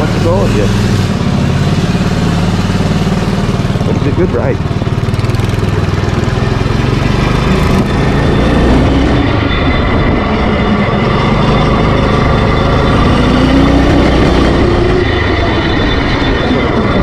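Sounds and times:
small gas engine revving: 0.0s - 17.0s.

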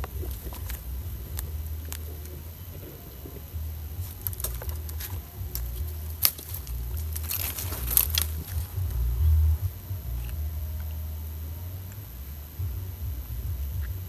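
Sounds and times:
wind rumble on microphone: 0.0s - 14.0s
paper carton clicks and crackles: 4.0s - 8.7s.

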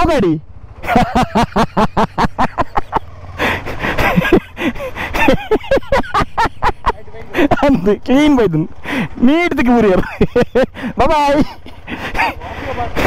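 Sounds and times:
man laughing in breathy bursts: 0.8s - 7.8s, 9.8s - 13.0s.

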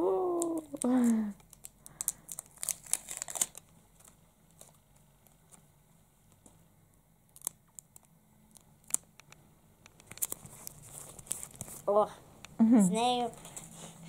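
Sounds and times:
sharp paper clicks: 0.7s - 5.6s, 7.3s - 11.8s
paper rustling: 1.5s - 5.6s, 10.1s - 11.9s.

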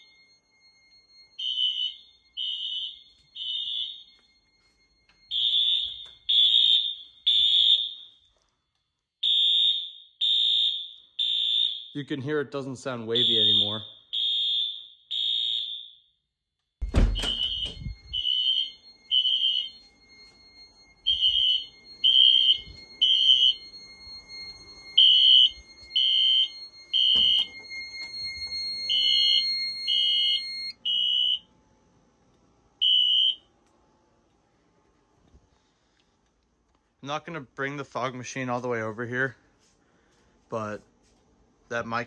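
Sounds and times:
faint steady high tone: 0.0s - 1.4s, 2.0s - 6.4s, 16.8s - 36.1s
fire alarm horn beeps: 0.0s - 16.2s, 16.8s - 31.6s, 32.8s - 33.5s.

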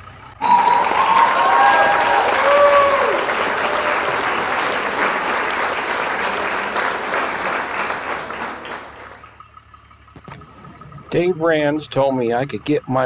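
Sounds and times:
crowd applauding and cheering: 0.4s - 9.4s.

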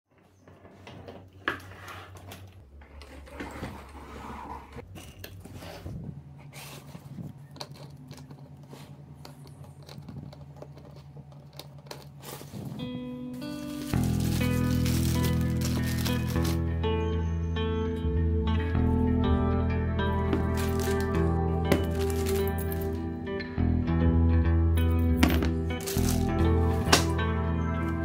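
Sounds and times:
suitcase rolling on tile floor: 0.2s - 5.9s, 13.4s - 16.6s, 20.3s - 22.9s.

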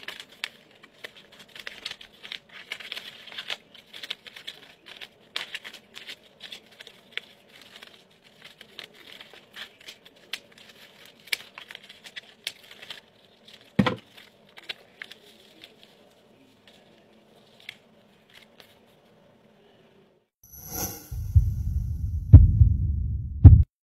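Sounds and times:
scissors snipping paper: 0.0s - 18.9s
paper rustling: 0.0s - 19.7s
loud thump: 21.1s - 23.7s.

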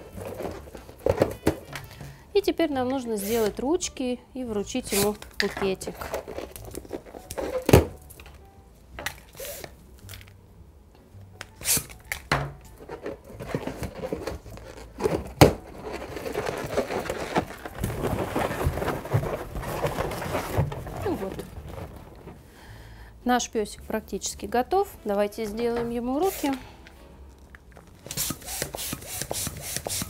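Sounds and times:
balloon twisting and squeaking: 4.9s - 8.0s, 13.0s - 22.6s, 27.7s - 30.0s.

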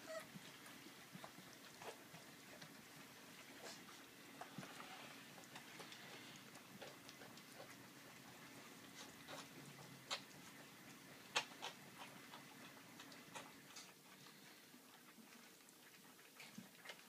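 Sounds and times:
puppies lapping food: 0.0s - 17.0s.

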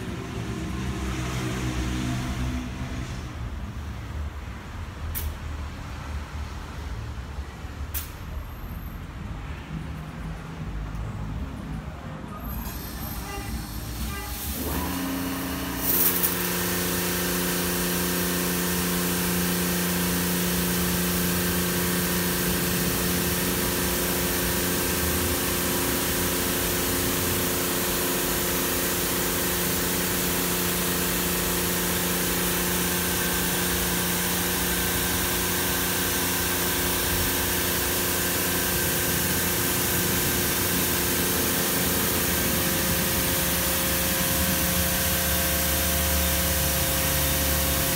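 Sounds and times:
motor hum: 13.6s - 47.9s
high-pressure water jets hissing: 36.8s - 47.9s.

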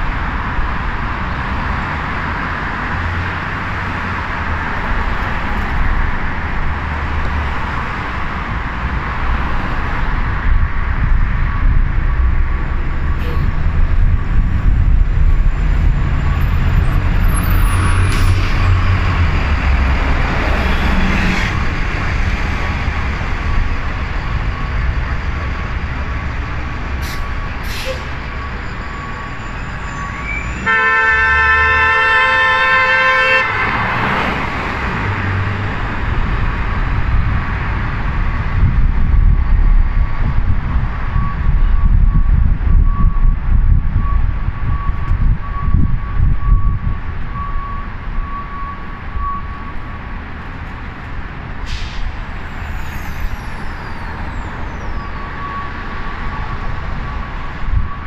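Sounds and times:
street traffic rumble: 0.0s - 58.0s
vehicle horn blast: 30.6s - 33.8s.

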